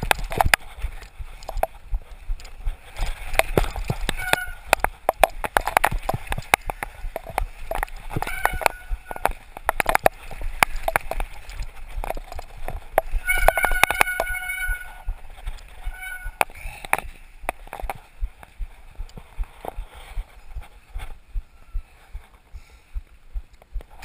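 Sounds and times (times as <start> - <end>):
mountain bike rattling over trail: 0.0 - 18.2.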